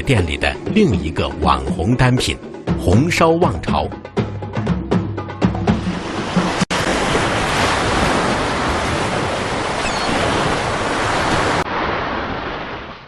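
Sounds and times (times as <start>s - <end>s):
wind: 5.6s - 13.0s
waves breaking on beach: 5.8s - 13.0s.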